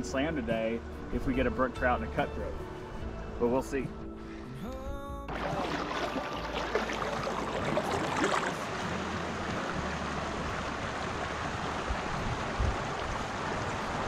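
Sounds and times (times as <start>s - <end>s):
creek rippling over rocks: 5.3s - 14.0s.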